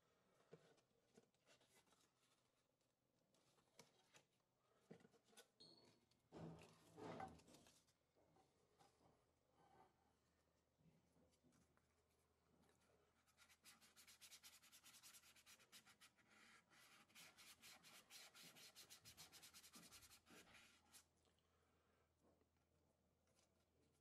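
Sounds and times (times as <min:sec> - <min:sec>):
paper scratching on sanding board: 0:13.4 - 0:21.0.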